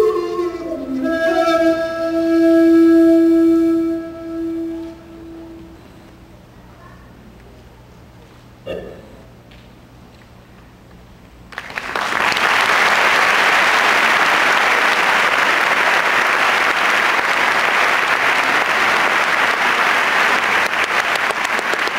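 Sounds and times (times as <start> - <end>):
audience applause: 11.5 - 21.9.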